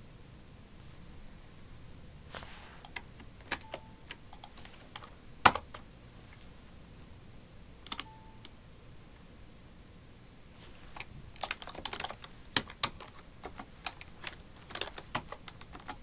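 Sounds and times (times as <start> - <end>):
keyboard keys clicking: 2.8 - 5.9, 7.8 - 8.6, 11.0 - 16.0.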